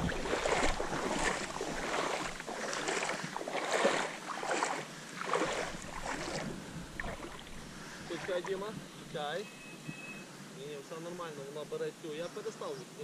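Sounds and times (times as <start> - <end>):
water splashing around a boat: 0.0 - 8.8.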